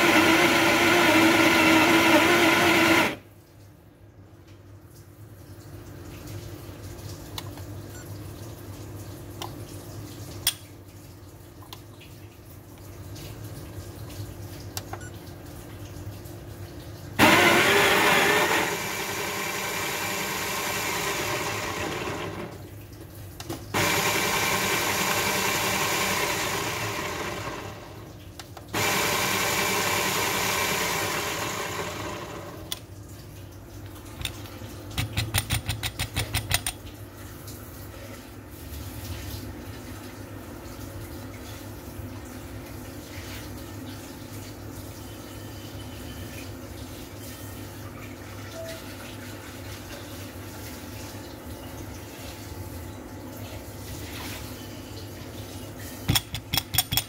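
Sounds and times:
coffee grinder grinding beans: 0:00.0 - 0:03.2, 0:17.2 - 0:22.5, 0:23.8 - 0:28.0, 0:28.8 - 0:32.7.

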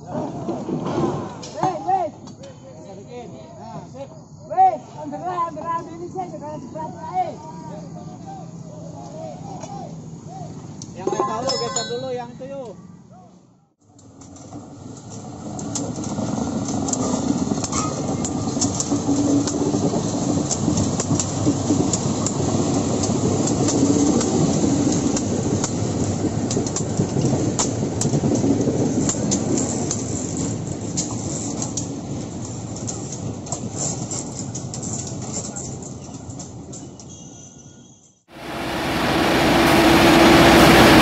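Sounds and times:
train wheels clacking on rails: 0:15.0 - 0:37.1.

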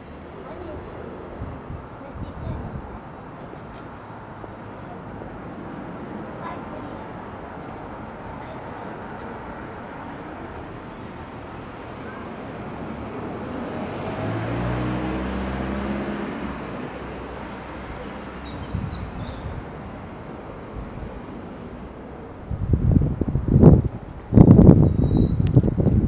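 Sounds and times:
traffic noise: 0:00.0 - 0:26.0
car driving past: 0:09.6 - 0:23.8.

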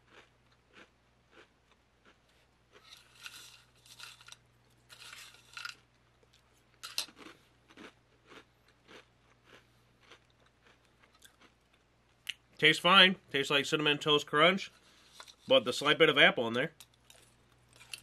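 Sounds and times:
dry cereal crunching: 0:00.0 - 0:11.6.

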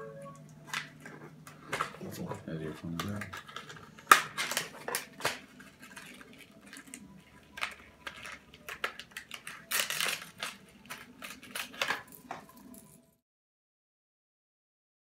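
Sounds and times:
plastic packaging crinkling: 0:01.8 - 0:12.9.

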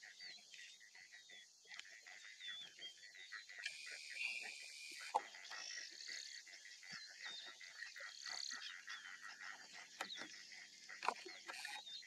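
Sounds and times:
birds chirping and whistling: 0:11.2 - 0:12.0.

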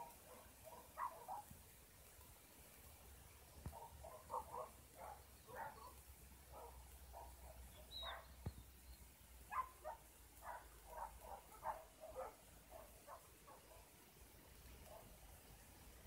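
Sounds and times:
faint dogs barking: 0:00.0 - 0:01.7, 0:03.6 - 0:08.5, 0:09.4 - 0:15.6.

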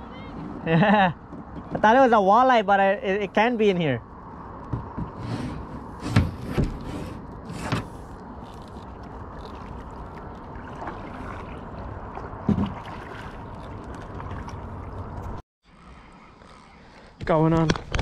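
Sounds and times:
kayak paddle pulling through water: 0:06.7 - 0:16.6.

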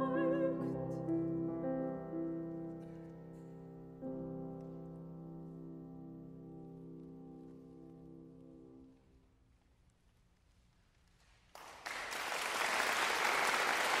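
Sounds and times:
audience applause: 0:11.5 - 0:14.0.

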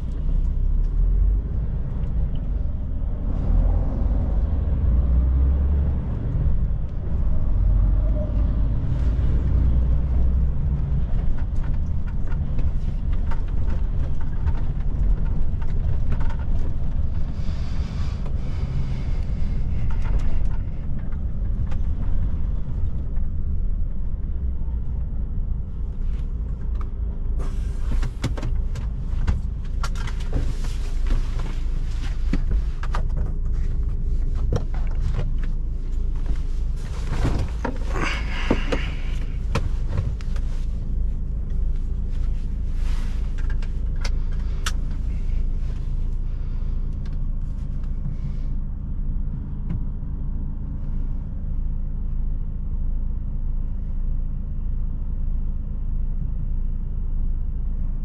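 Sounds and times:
road noise rumble: 0:00.0 - 0:58.0
truck diesel engine running: 0:08.8 - 0:25.8, 0:35.6 - 0:47.0.

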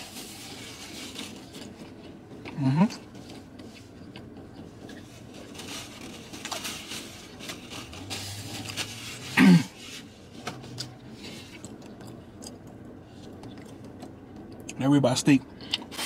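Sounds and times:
low hum: 0:00.0 - 0:14.8
paper napkin rustling: 0:05.0 - 0:11.6.

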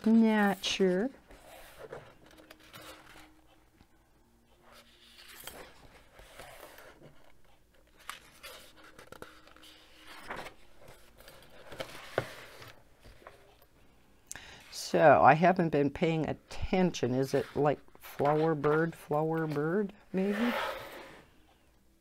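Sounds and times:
paper pages rustling: 0:01.3 - 0:03.6, 0:04.6 - 0:13.6, 0:17.2 - 0:21.2.

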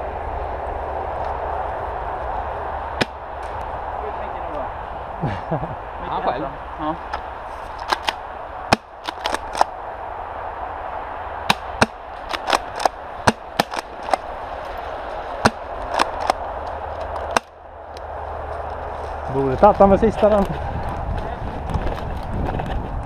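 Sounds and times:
low hum: 0:00.0 - 0:23.0
airsoft gun snaps and cracks: 0:07.8 - 0:09.7, 0:11.5 - 0:13.0, 0:13.6 - 0:14.2, 0:15.4 - 0:16.4.

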